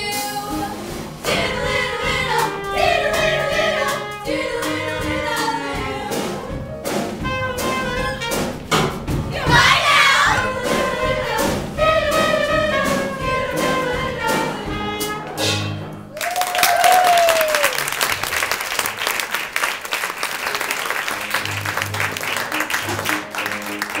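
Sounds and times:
live band playing: 0.0 - 24.0
audience applause: 16.1 - 24.0
audience cheering: 16.1 - 24.0.

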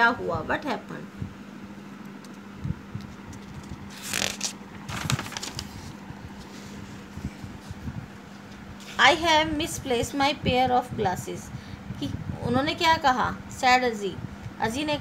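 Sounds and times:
page turning rustle: 3.0 - 7.1.

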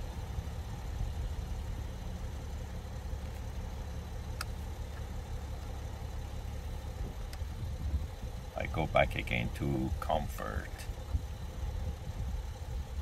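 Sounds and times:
car engine idling: 0.0 - 13.0
light click: 4.4 - 4.6.

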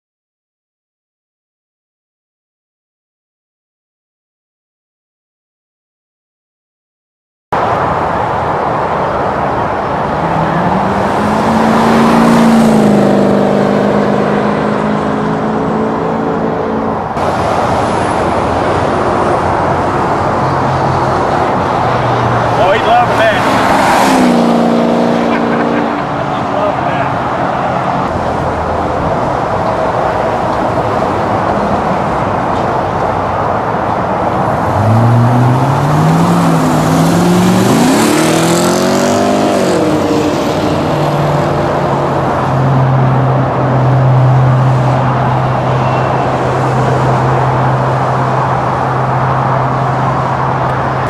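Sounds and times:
car engine accelerating past: 10.2 - 16.6, 22.3 - 27.9, 34.6 - 42.0.

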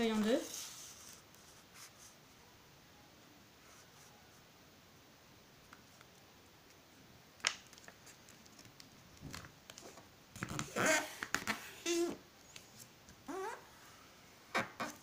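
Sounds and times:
paper rustling and creasing: 0.0 - 2.1.

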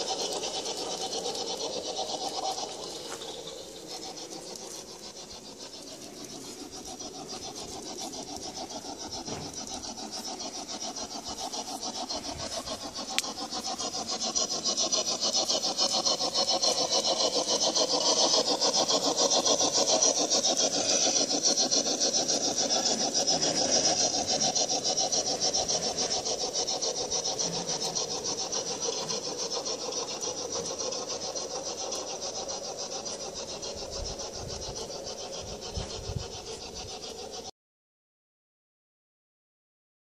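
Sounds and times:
model steam locomotive chuffing: 0.0 - 37.5.

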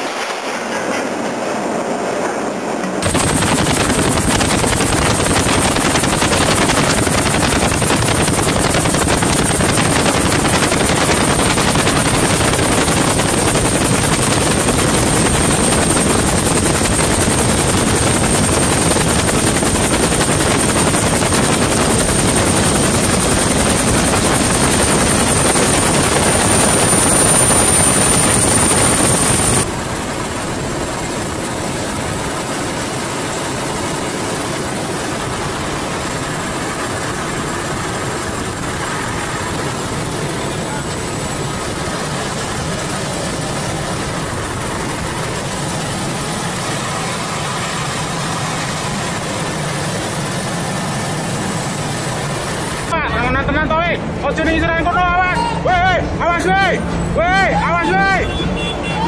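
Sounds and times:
helicopter rotor and engine: 0.0 - 59.0
high whine: 2.5 - 33.6.

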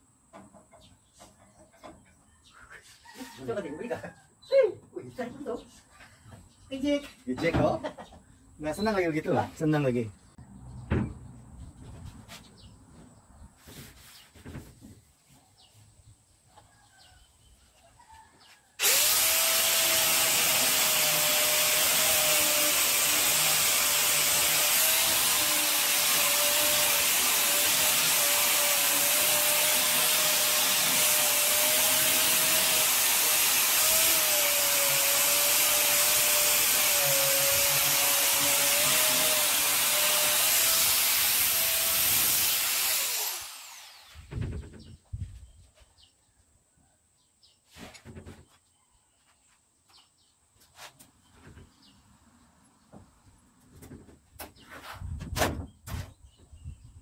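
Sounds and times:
electric grinder on metal: 18.8 - 44.4.

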